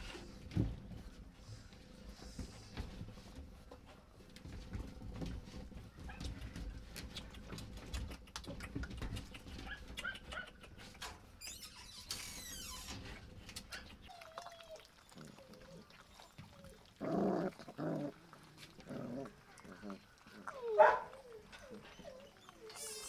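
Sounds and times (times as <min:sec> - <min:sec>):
puppies chewing wetly: 0:06.2 - 0:11.3, 0:12.2 - 0:23.0
smacking and licking clicks: 0:07.0 - 0:11.2
puppy whining: 0:13.7 - 0:23.0
loud puppy cries: 0:20.5 - 0:23.0.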